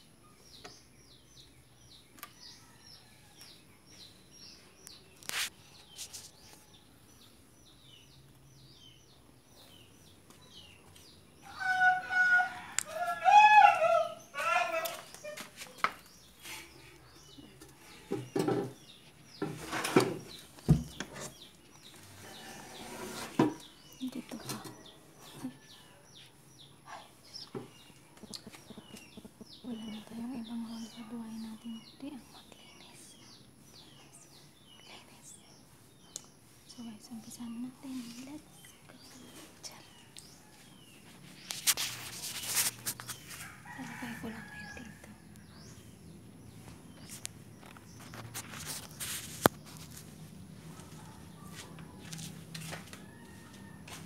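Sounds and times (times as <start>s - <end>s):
small birds chirping: 0.0s - 54.0s
bare feet on concrete floor: 2.1s - 8.4s, 9.2s - 30.6s, 37.8s - 54.0s
knocks and clatters of handling: 17.4s - 18.8s.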